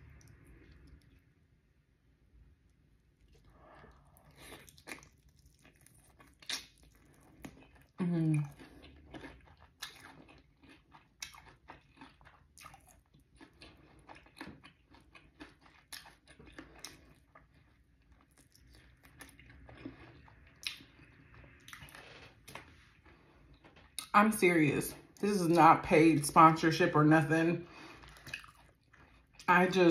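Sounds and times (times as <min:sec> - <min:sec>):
chewing crispy food: 0:02.3 - 0:25.6, 0:27.7 - 0:29.9
wet mouth sounds: 0:03.2 - 0:09.0.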